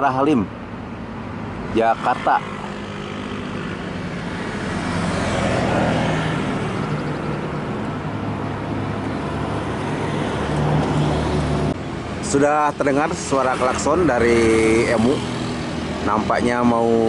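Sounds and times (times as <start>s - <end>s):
low rumble of vehicles: 0.0s - 17.0s.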